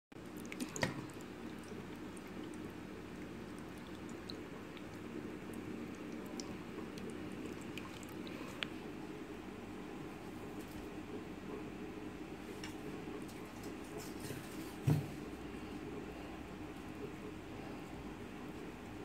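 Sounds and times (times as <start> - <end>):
low background hum: 0.1 - 19.0
water splashing: 0.2 - 8.6.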